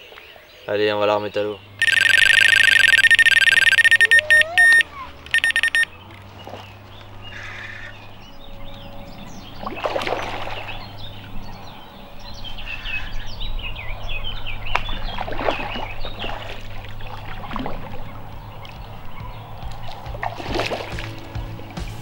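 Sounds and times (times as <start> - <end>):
birds chirping: 0.0 - 22.0
water splashing and sloshing: 4.8 - 22.0.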